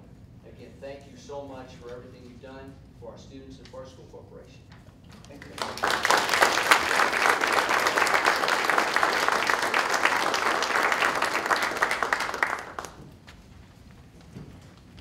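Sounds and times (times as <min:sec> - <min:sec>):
crowd applauding: 0:05.4 - 0:13.1.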